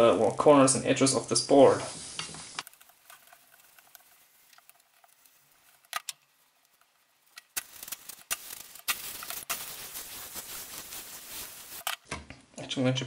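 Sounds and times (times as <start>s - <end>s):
iron sizzling on wet paper: 1.8s - 12.0s
water crackling on hot paper: 1.8s - 12.0s.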